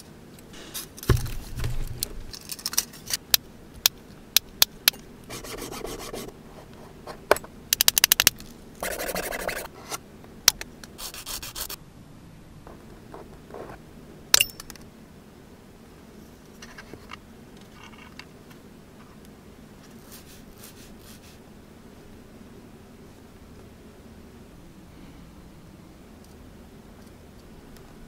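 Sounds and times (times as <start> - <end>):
low thump: 1.1 - 2.3
sanding stick rubbing: 5.3 - 6.3, 8.8 - 9.7, 11.0 - 11.8.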